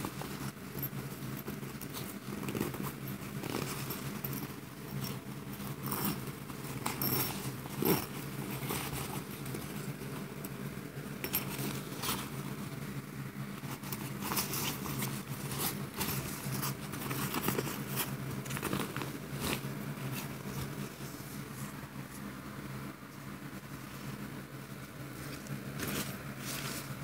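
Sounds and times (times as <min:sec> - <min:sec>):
metal zippers: 0:00.0 - 0:12.8, 0:13.6 - 0:21.4
nylon fabric rustling: 0:00.0 - 0:22.3, 0:23.6 - 0:27.0
steady low hum: 0:00.0 - 0:27.0.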